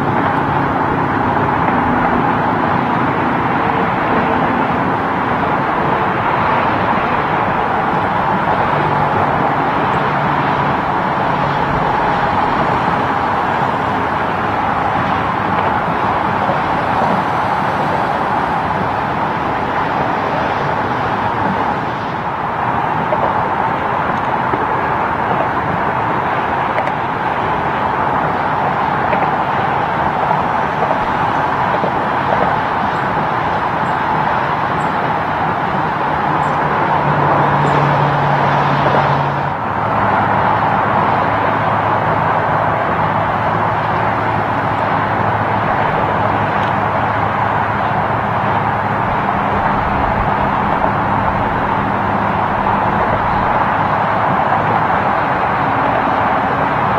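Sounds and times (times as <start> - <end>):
highway traffic roar: 0.0 - 56.9.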